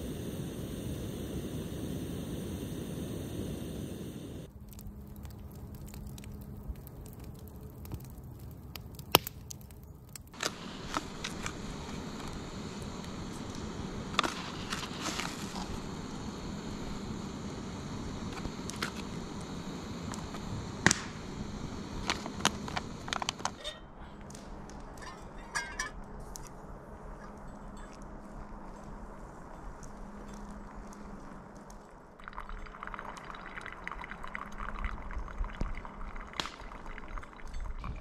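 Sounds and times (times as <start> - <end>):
campfire crackling: 0.0 - 38.0
steady fire hiss: 0.0 - 38.0
sharp pops: 10.3 - 16.5, 17.2 - 23.6.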